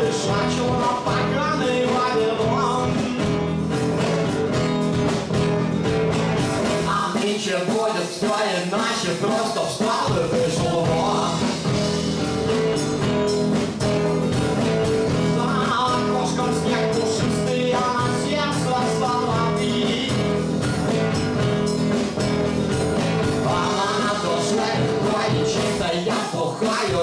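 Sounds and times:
man singing: 0.0s - 3.6s, 6.8s - 11.9s, 15.1s - 20.5s, 23.2s - 27.0s
guitar: 0.0s - 27.0s
steady drum beat: 0.0s - 27.0s.

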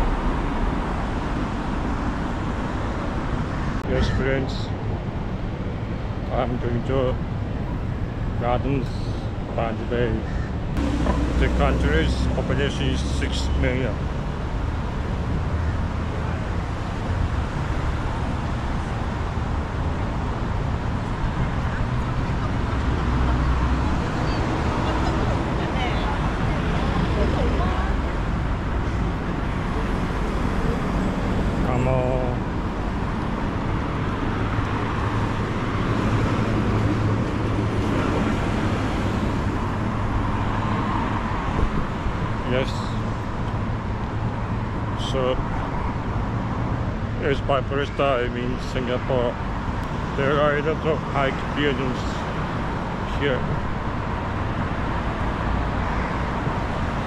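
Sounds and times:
city street traffic: 0.0s - 57.0s
low hum: 10.7s - 14.1s.

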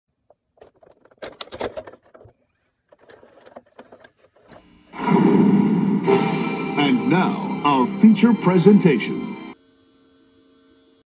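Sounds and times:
loud steady hum: 4.6s - 11.0s.

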